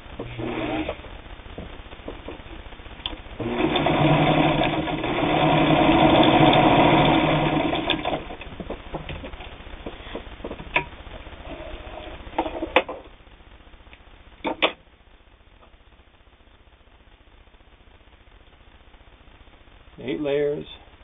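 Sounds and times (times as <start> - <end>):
sewing machine running: 0.2 - 1.0, 3.4 - 8.5
sharp clicks and knocks: 7.8 - 11.0, 14.4 - 14.8.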